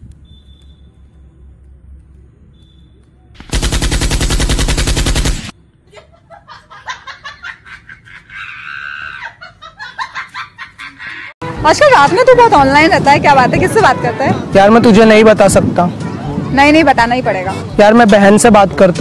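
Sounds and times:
machine-gun fire: 3.4s - 5.5s.

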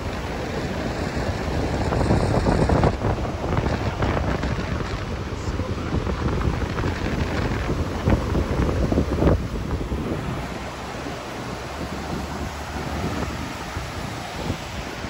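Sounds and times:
waterfall rushing: 0.0s - 15.0s
wind buffeting microphone: 0.0s - 15.0s.

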